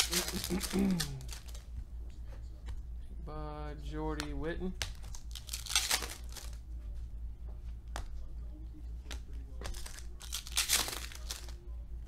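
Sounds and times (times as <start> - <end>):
foil wrapper crinkling and tearing: 0.0 - 1.6, 4.9 - 6.6, 9.6 - 11.7.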